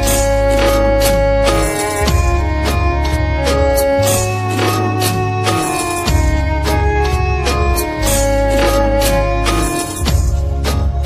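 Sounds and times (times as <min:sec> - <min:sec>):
instrumental music with percussion beat: 0:00.0 - 0:11.0.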